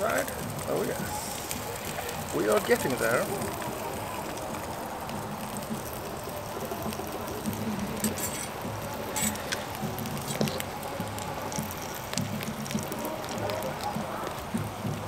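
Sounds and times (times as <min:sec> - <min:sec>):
sausages sizzling in a frying pan: 0:00.0 - 0:15.0
metal utensils clicking on pan: 0:08.0 - 0:10.6.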